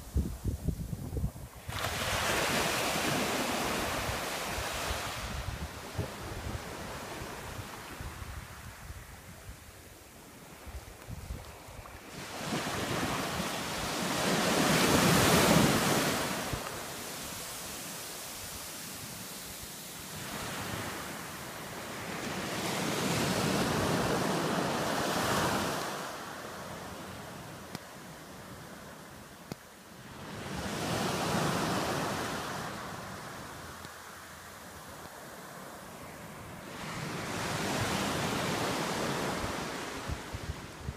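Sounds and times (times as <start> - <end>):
wind buffeting microphone: 0.0 - 9.7
small waves breaking on shore: 1.5 - 40.9.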